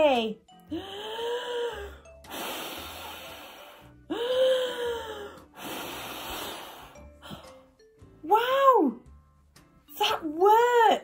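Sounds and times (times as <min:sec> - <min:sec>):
person blowing breathy gusts: 0:00.7 - 0:07.7.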